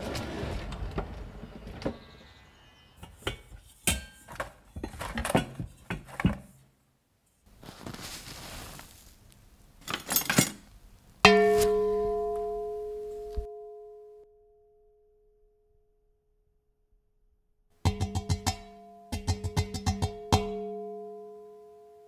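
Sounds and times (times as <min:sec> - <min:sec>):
soft hissing rub: 0:07.5 - 0:09.5
metal object ringing when struck: 0:11.3 - 0:14.3.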